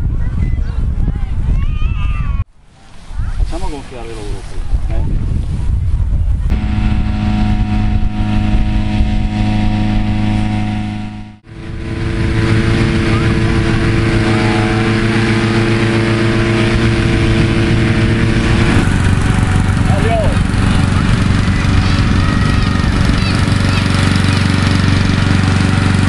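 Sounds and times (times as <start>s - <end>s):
inflator fans running: 6.5s - 26.0s.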